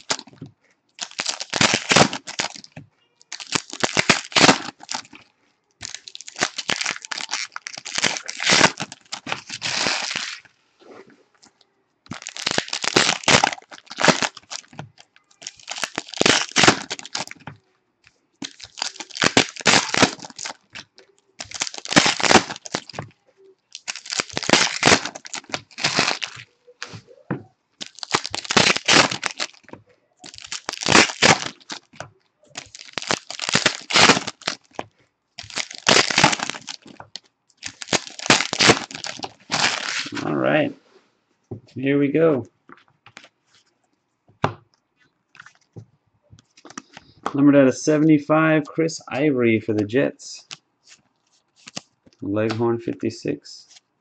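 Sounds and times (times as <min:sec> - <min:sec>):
card pack wrappers crinkling and tearing: 0:00.0 - 0:00.4, 0:01.0 - 0:05.2, 0:05.8 - 0:10.5, 0:12.1 - 0:17.6, 0:18.4 - 0:23.1, 0:23.7 - 0:27.0, 0:27.8 - 0:34.8, 0:35.4 - 0:40.4, 0:51.6 - 0:51.9.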